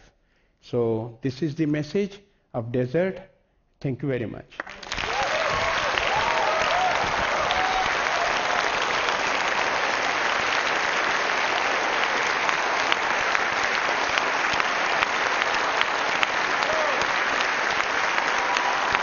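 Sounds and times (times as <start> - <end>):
audience applauding: 4.6 - 19.0.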